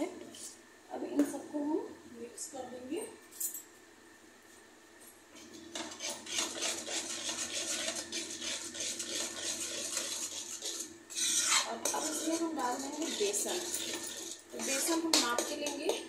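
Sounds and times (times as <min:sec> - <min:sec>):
metal spoon scraping a pan: 0:05.5 - 0:16.0.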